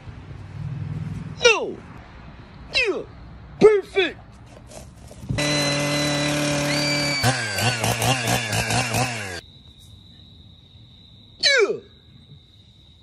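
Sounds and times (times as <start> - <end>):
chainsaw cutting pumpkin: 4.7 - 9.4.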